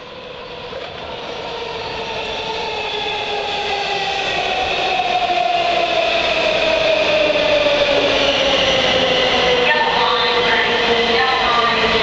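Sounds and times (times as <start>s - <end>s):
subway train pulling in: 0.0s - 12.0s.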